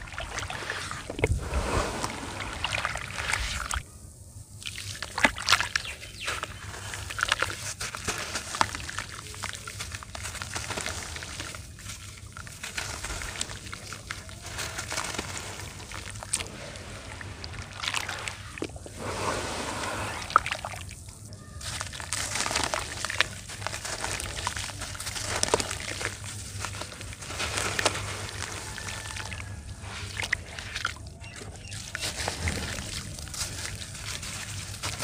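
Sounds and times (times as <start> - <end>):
wet dirt sloshing in water: 0.0 - 3.8, 4.6 - 35.0
small crackles and clicks: 5.2 - 16.5, 21.6 - 29.6.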